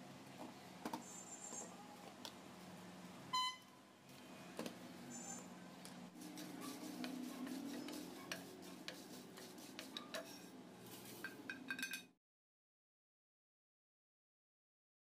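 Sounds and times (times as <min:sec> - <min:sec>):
spatula stirring spices in a pan: 0:06.2 - 0:11.5.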